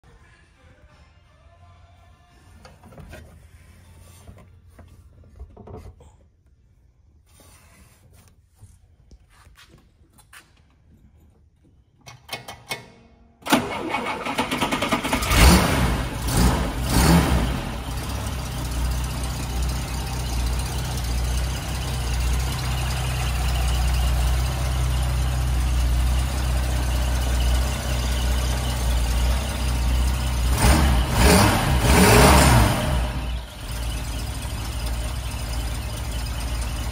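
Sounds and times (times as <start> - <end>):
car engine starting and revving: 13.5 - 36.9
car engine idling: 15.2 - 36.9.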